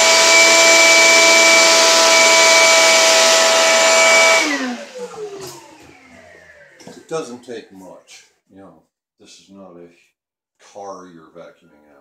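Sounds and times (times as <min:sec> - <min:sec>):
vacuum motor whine: 0:00.0 - 0:07.3.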